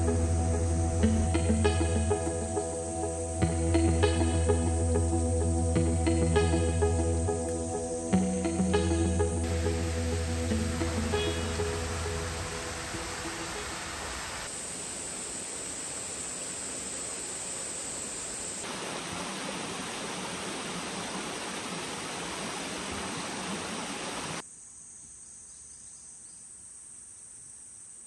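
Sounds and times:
high insect drone: 0:00.0 - 0:22.3
stream rushing: 0:09.4 - 0:17.8, 0:18.6 - 0:24.4.

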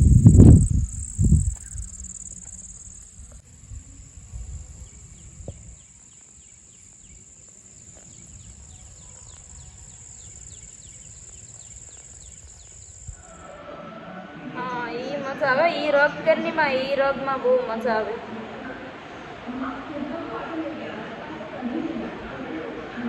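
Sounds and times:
low rumble: 0:00.0 - 0:05.7
insects droning: 0:00.0 - 0:13.6.

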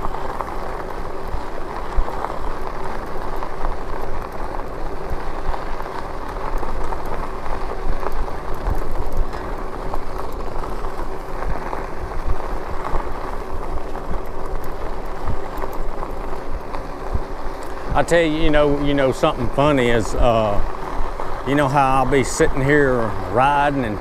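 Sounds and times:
wind rumble on camera: 0:00.0 - 0:18.1
bike tyres crackling on dirt: 0:00.0 - 0:24.0.

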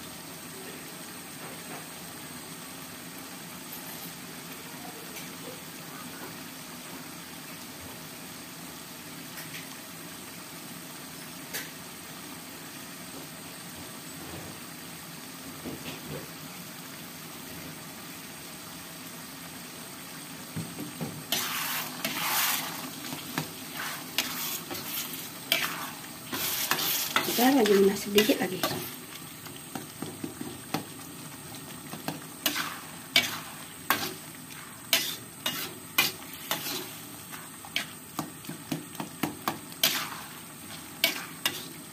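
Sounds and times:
sauce simmering in a wok: 0:00.0 - 0:41.9
spatula stirring sizzling sauce: 0:17.0 - 0:41.9.

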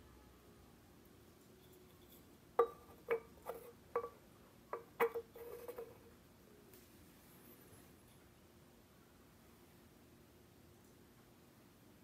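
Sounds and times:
drink can knocking on wooden table: 0:02.6 - 0:05.9.

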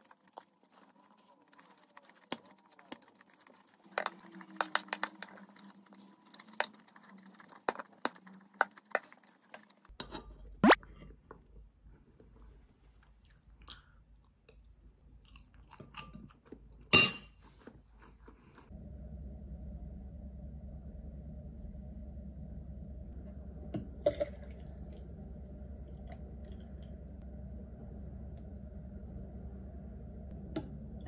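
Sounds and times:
chewing: 0:00.0 - 0:09.9, 0:12.2 - 0:18.7.

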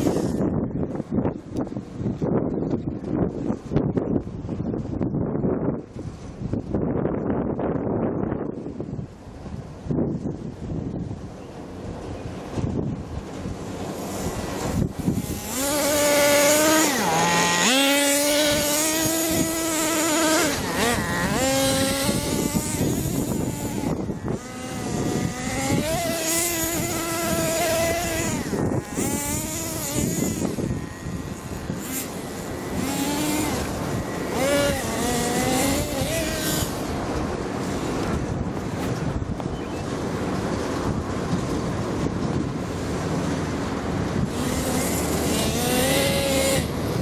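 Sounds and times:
toy car motor whining: 0:00.0 - 0:00.5, 0:13.9 - 0:37.0, 0:44.3 - 0:47.0.

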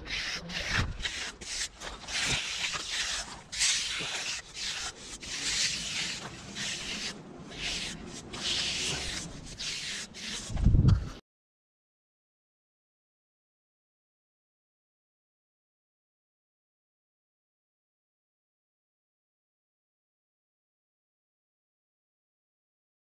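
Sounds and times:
trowel scraping wet concrete: 0:00.0 - 0:10.6.

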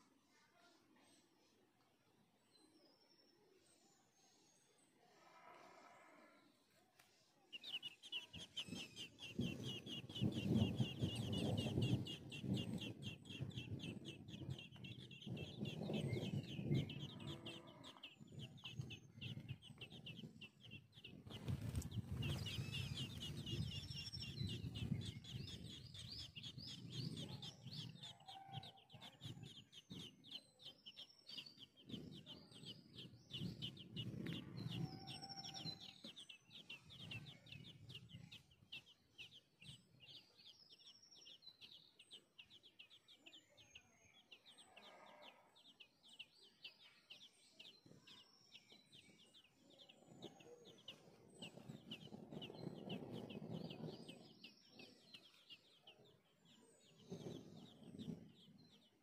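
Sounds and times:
nestlings cheeping: 0:07.5 - 0:39.0.

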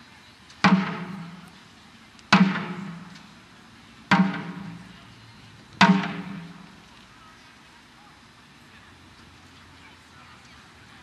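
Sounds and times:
taiko drum booming hits: 0:00.6 - 0:01.4, 0:02.3 - 0:03.1, 0:04.1 - 0:04.8, 0:05.8 - 0:06.6.

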